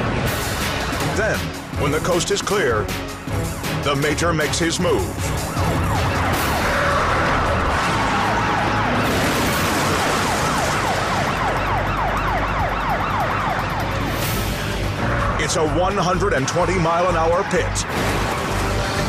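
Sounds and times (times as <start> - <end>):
engine and tyres rumbling: 4.4 - 19.0
police siren: 4.9 - 18.8.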